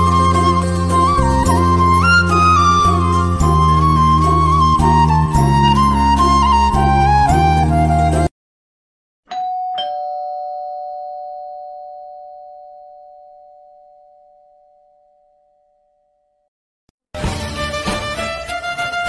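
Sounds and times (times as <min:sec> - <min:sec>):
flute music: 0:00.0 - 0:08.3
two-note doorbell chime: 0:09.3 - 0:15.9.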